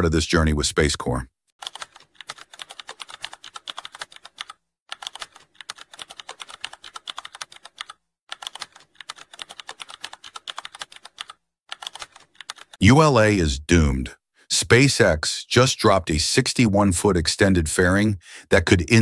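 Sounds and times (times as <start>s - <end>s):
keyboard typing clicks: 1.6s - 12.8s.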